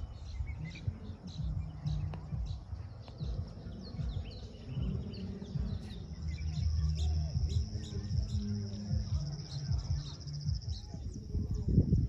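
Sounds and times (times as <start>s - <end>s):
birds chirping: 0.0s - 12.0s
high insect trill: 3.6s - 12.0s.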